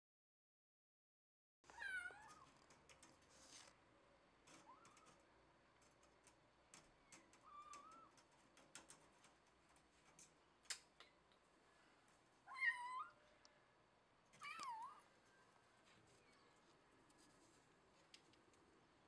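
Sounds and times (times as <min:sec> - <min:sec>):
cat meowing: 0:12.5 - 0:13.2, 0:14.4 - 0:15.1.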